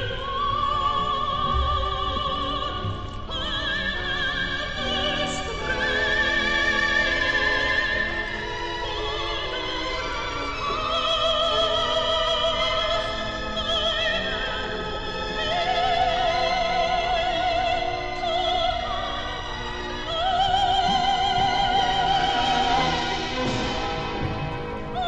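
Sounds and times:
person singing opera: 0.0 - 23.4
musical accompaniment: 0.0 - 25.0.

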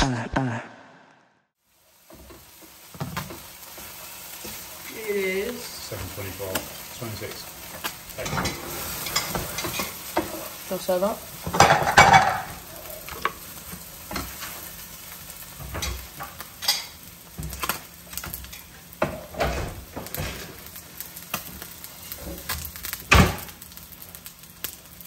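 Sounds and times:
sauce sizzling: 1.6 - 25.0
wooden spoon scraping a pan: 7.7 - 10.6.

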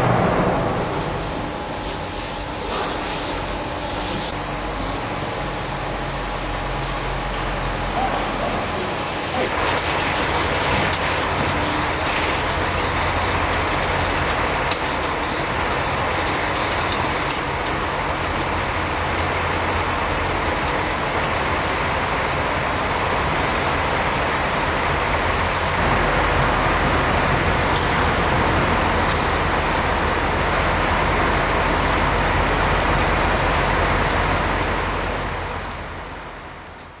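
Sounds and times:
roller conveyor running: 0.0 - 37.0.

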